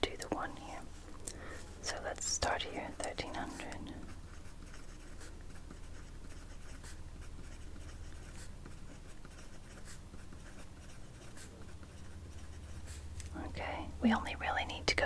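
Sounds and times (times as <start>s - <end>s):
steady low hum: 0.0s - 15.0s
pencil writing on paper: 2.6s - 13.2s.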